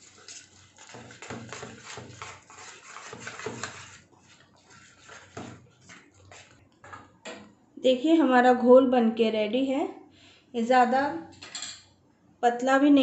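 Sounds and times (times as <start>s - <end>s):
whisk beating batter in steel pan: 0.0s - 6.7s.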